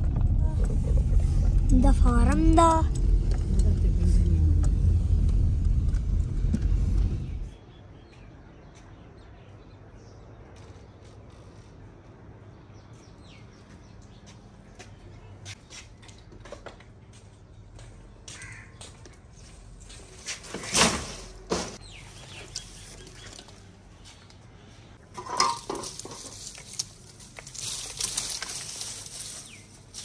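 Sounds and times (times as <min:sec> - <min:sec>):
birds calling and chirping: 0:05.9 - 0:11.4, 0:17.2 - 0:20.7, 0:21.8 - 0:25.0, 0:27.7 - 0:30.0.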